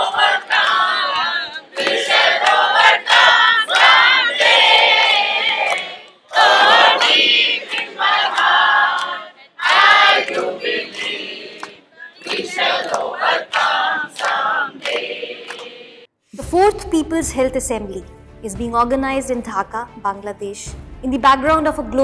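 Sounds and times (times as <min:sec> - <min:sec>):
crowd chanting: 0:00.0 - 0:16.1
hand claps: 0:00.1 - 0:15.8.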